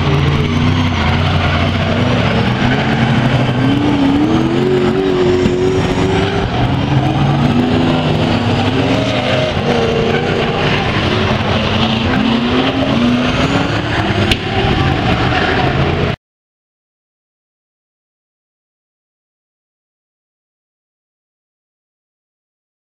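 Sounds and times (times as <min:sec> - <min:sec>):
race car engines revving: 0:00.0 - 0:16.2.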